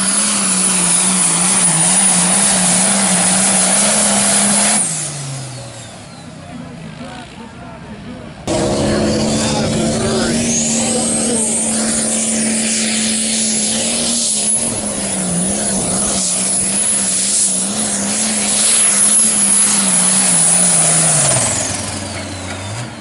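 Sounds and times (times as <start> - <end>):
tractor engine at full throttle: 0.0 - 23.0
high turbo whistle: 8.5 - 22.1.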